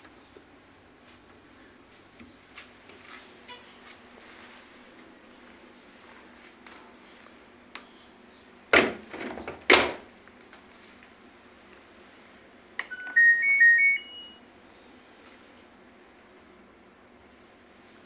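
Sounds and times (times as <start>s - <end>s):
rising electronic beeps jingle: 12.9s - 14.4s.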